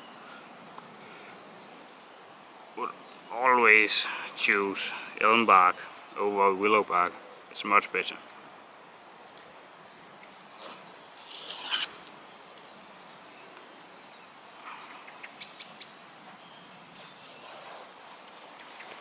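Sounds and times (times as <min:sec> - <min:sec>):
faint crackles of fibres: 0:09.1 - 0:15.0, 0:16.3 - 0:19.0
bark tearing: 0:10.6 - 0:12.0.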